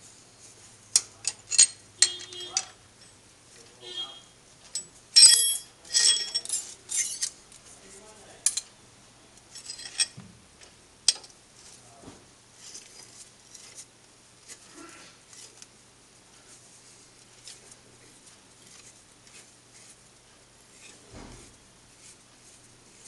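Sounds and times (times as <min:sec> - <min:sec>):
metal tools clinking on iron: 0:01.0 - 0:03.2, 0:04.7 - 0:07.4, 0:08.4 - 0:08.7, 0:09.5 - 0:10.2.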